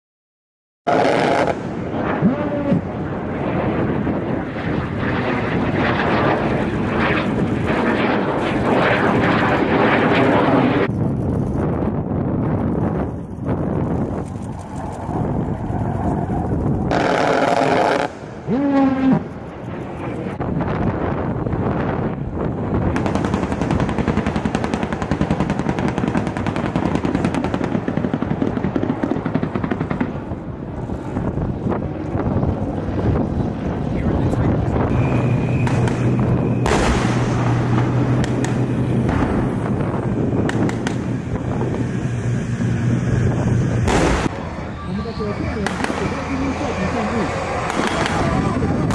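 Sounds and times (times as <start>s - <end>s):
fighter jet roaring overhead: 0.9s - 48.9s
helicopter rotor: 0.9s - 48.9s
helicopter gun rapid fire: 5.3s - 20.3s, 22.9s - 30.3s, 35.0s - 44.4s, 45.5s - 48.9s.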